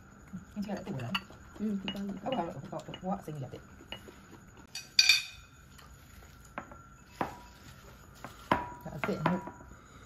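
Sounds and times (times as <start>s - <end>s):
dishes and cutlery clinking: 0.6s - 3.2s, 3.8s - 5.8s.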